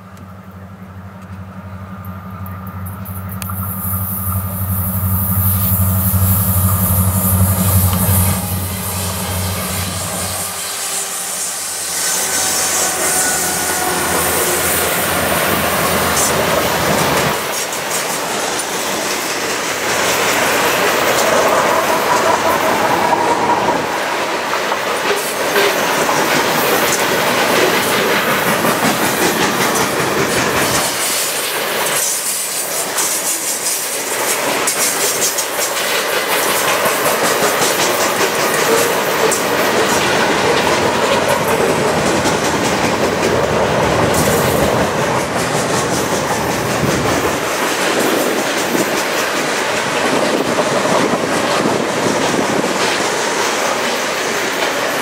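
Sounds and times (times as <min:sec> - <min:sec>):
steel wheels rolling on rail: 0:00.0 - 0:55.0
clickety-clack over rail joints: 0:12.9 - 0:55.0.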